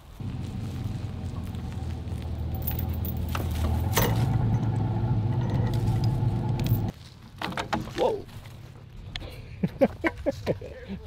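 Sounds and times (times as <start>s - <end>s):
pickup engine revving: 0.2s - 6.9s.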